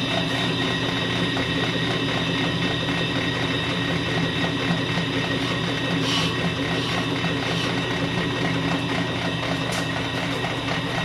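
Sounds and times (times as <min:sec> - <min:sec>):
brake lathe motor humming: 0:00.0 - 0:11.0
cutter scraping rotor: 0:04.7 - 0:11.0.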